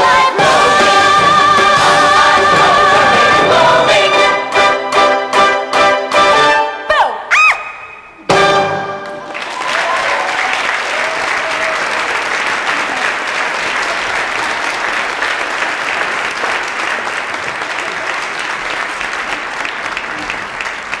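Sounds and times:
audience applauding: 8.9s - 21.0s.

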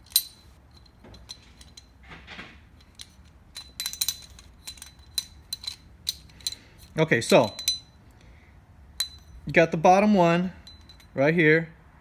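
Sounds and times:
metal balls clicking and clinking: 0.0s - 2.0s, 2.7s - 8.0s, 9.0s - 9.6s, 10.6s - 11.2s.

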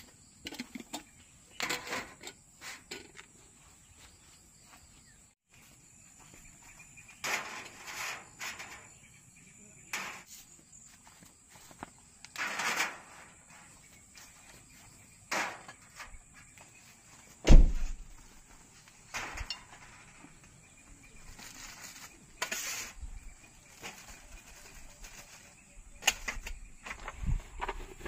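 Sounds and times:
loud low thump: 17.4s - 18.0s.

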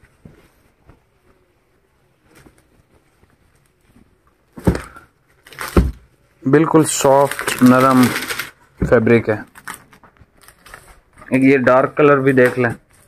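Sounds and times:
fabric rustling: 0.0s - 5.6s.

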